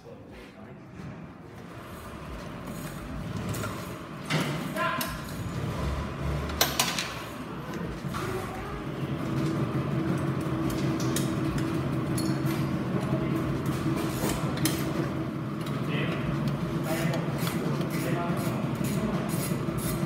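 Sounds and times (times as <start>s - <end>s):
low workshop hum: 0.0s - 20.0s
hand tools clinking on metal: 10.7s - 12.8s.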